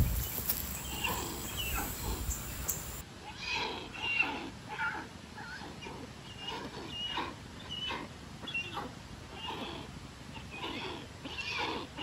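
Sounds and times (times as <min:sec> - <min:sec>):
young hornbills calling: 0:00.0 - 0:03.0.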